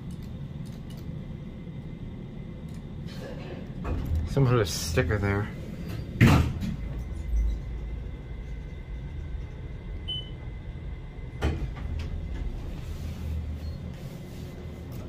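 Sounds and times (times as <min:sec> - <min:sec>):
elevator cab low hum: 0:00.0 - 0:15.0.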